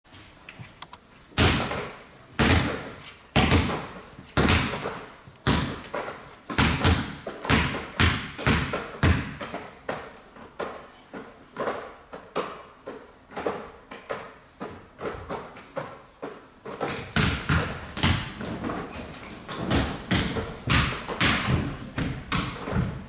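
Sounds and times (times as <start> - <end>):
basketballs thudding: 1.4 - 10.8, 13.3 - 23.0.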